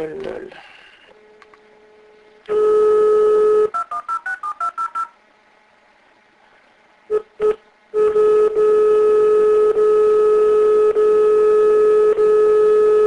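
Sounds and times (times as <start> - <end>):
steady telephone line tone: 1.9 - 5.2, 7.1 - 13.0.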